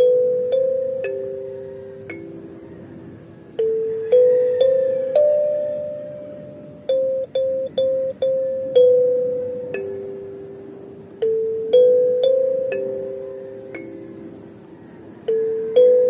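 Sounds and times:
kalimba melody: 0.0 - 16.0.

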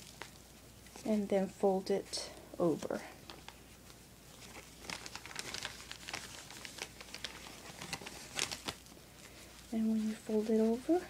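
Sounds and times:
plastic bag crinkling: 2.7 - 11.0.

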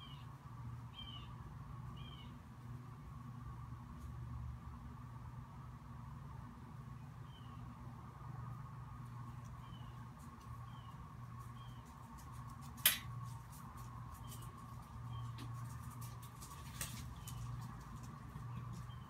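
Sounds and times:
faint steady hum: 0.0 - 19.0
sharp click: 12.8 - 13.1.

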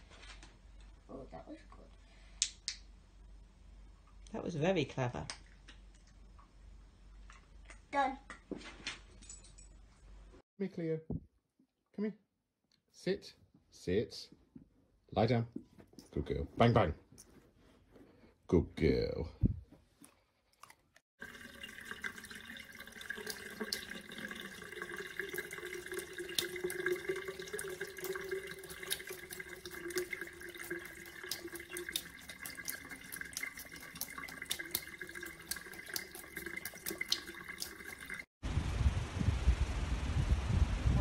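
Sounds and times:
tap water splashing into sink: 21.2 - 38.3
low rumble: 38.4 - 41.0.

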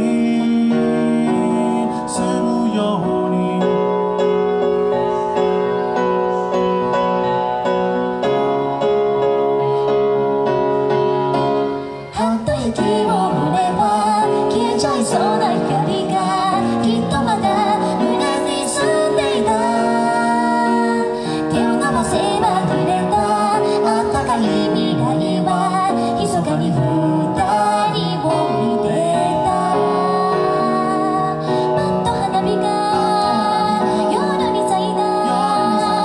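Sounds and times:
electronic keyboard: 0.0 - 36.0
woman singing pop ballad: 12.1 - 36.0.

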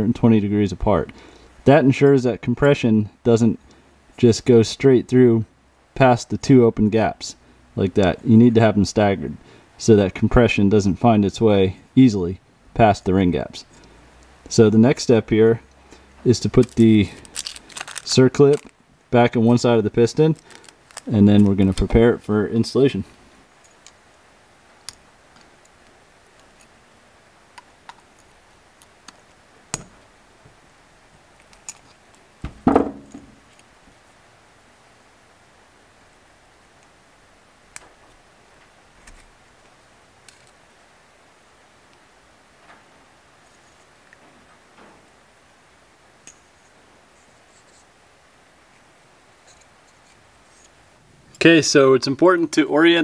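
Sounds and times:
light metal scraping and rubbing: 43.4 - 44.0, 46.3 - 48.0, 49.4 - 50.8.

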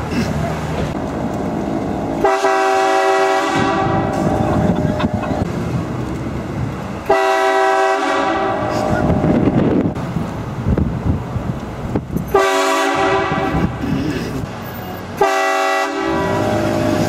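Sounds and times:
truck road noise: 0.0 - 17.0
train horn blasts: 2.2 - 4.4, 7.0 - 9.2, 12.3 - 13.8, 15.2 - 17.0.

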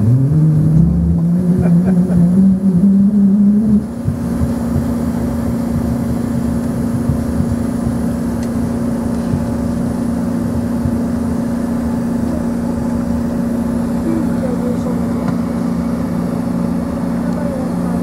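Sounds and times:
jet engines idling hum: 0.0 - 18.0.

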